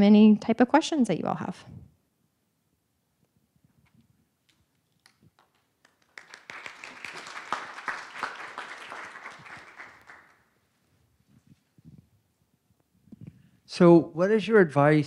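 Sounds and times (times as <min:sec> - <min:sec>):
audience clapping: 0:05.0 - 0:10.5.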